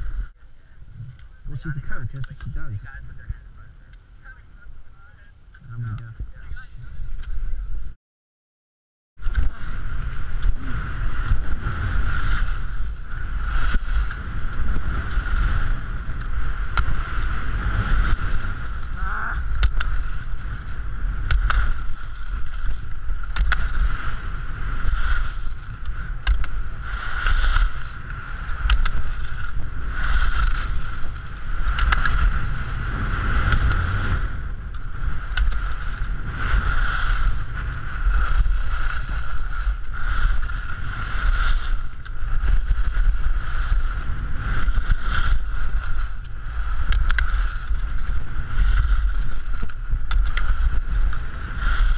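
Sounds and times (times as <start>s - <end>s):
wind rumble on microphone: 0.0s - 8.0s, 9.2s - 51.9s
ski edges scraping snow: 9.3s - 51.9s
sharp clicks: 31.7s - 32.2s.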